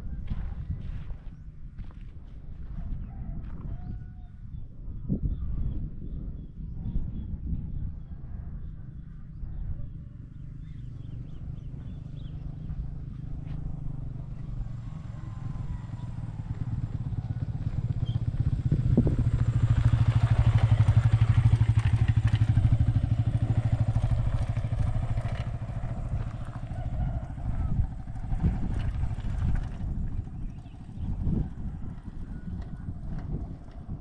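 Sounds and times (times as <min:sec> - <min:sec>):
motorcycle engine running: 0:08.9 - 0:34.0.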